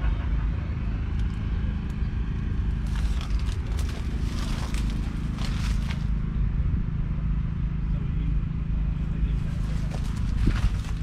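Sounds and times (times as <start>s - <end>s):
low engine hum: 0.0s - 11.0s
footsteps crunching on straw: 2.8s - 6.2s, 9.4s - 11.0s.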